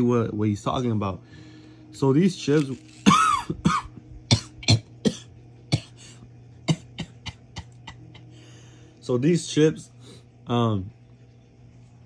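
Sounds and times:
chips crunching when chewed: 0:02.4 - 0:03.2.

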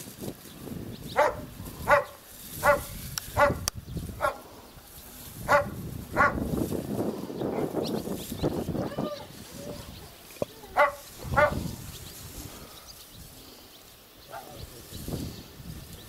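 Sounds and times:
dog barking: 0:01.2 - 0:04.4, 0:05.5 - 0:06.4, 0:10.7 - 0:11.6.

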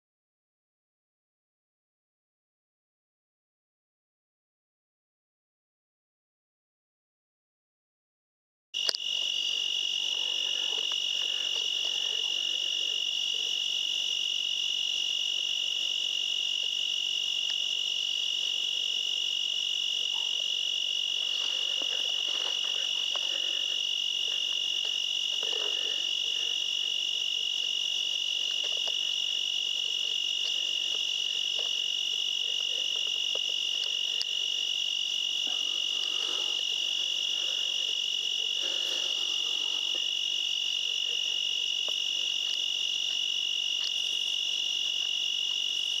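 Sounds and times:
night insects chorus: 0:08.8 - 0:46.0.

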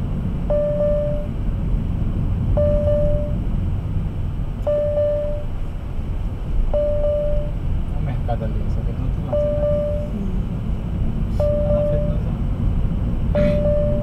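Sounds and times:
car road and engine rumble: 0:00.0 - 0:14.0
electronic beep: 0:00.5 - 0:01.3, 0:02.6 - 0:03.4, 0:04.7 - 0:05.5, 0:06.7 - 0:07.5, 0:09.3 - 0:10.1, 0:11.4 - 0:12.2, 0:13.4 - 0:14.0.

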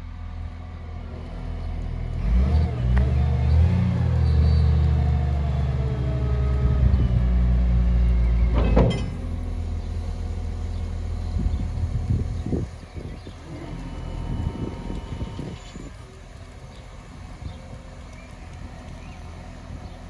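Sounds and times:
wheel loader diesel engine: 0:00.0 - 0:20.0
short rattle: 0:08.5 - 0:09.6.

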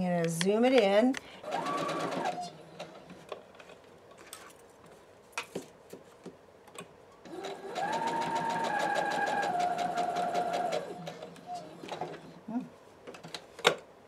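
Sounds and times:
sewing machine running: 0:01.4 - 0:03.0, 0:07.3 - 0:12.3.

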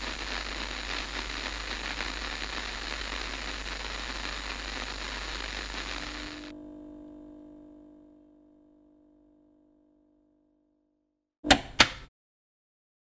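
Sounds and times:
dense hiss of noise: 0:00.0 - 0:06.5
soft chord of low tones: 0:06.5 - 0:11.0.

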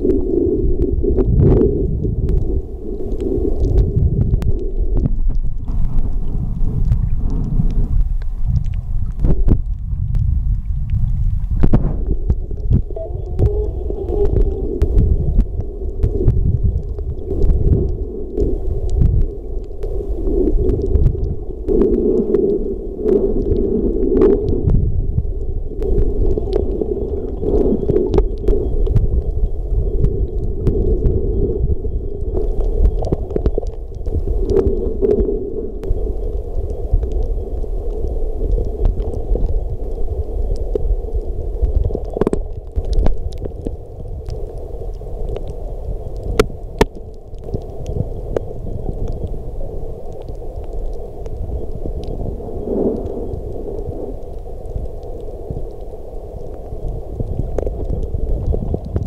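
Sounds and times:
underwater rumble of moving water: 0:00.0 - 0:59.0
sharp underwater clicks: 0:03.1 - 0:31.2.

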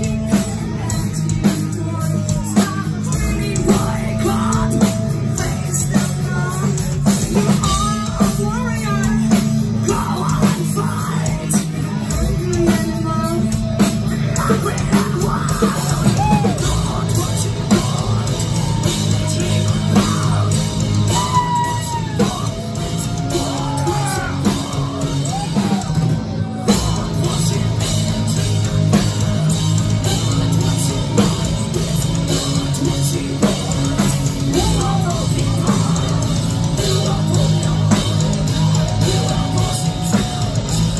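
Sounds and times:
woman singing: 0:00.0 - 0:22.6
heavy metal band playing: 0:00.0 - 0:40.9
pounding drums and cymbals: 0:00.0 - 0:40.9.

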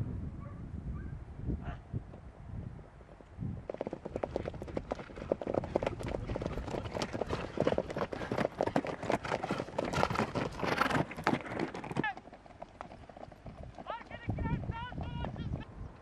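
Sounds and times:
horse hoofbeats on dirt track: 0:03.0 - 0:15.7.

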